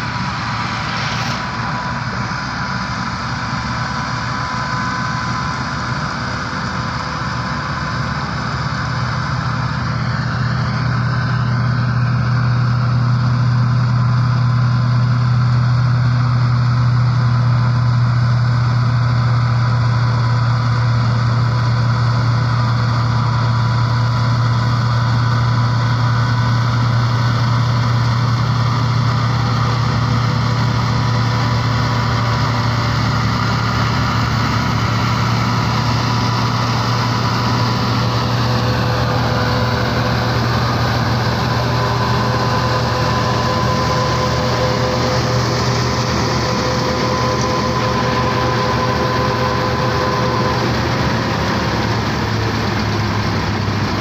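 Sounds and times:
tractor diesel engine: 0:00.0 - 0:54.0
thin whining tones: 0:19.7 - 0:54.0
straw chopper: 0:27.9 - 0:54.0.

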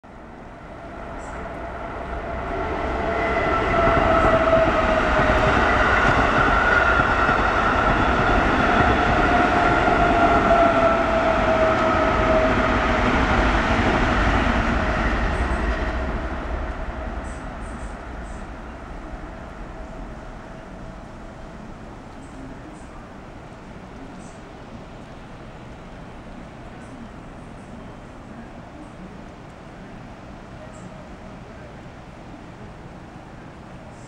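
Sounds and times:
train rumbling past: 0:00.0 - 0:34.0
faint drawn-out tones: 0:09.2 - 0:34.0.

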